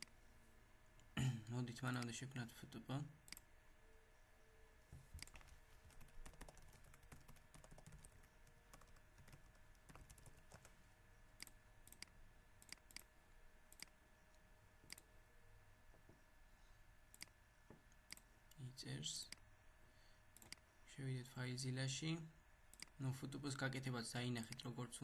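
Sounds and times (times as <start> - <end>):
faint steady hum: 0.0 - 25.0
keyboard typing: 5.1 - 10.7
mouse clicks: 20.4 - 20.6.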